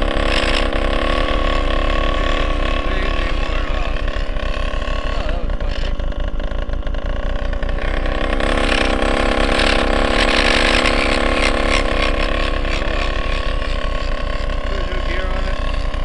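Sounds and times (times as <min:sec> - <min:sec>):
two-stroke engine running: 0:00.0 - 0:16.0.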